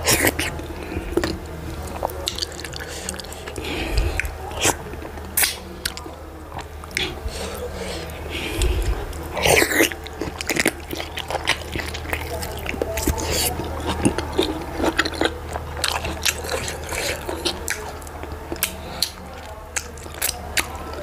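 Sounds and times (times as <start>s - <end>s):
lip smacks: 0.0s - 21.0s
wet chewing: 0.0s - 21.0s
sharp mouth clicks: 5.4s - 6.0s.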